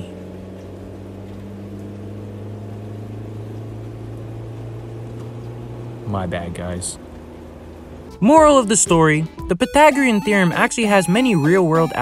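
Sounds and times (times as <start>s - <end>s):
car cabin hum: 0.0s - 12.0s
higher tone: 8.0s - 12.0s.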